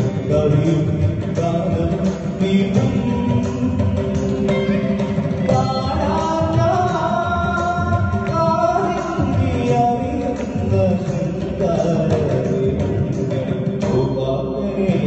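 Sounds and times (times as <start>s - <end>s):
keyboard and guitar accompaniment: 0.0s - 15.0s
person singing live: 0.0s - 15.0s.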